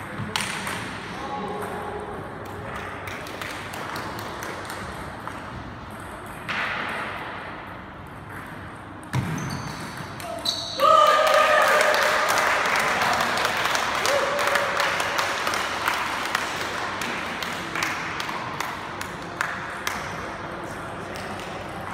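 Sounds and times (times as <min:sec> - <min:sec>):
spectators applauding: 0:10.8 - 0:18.2.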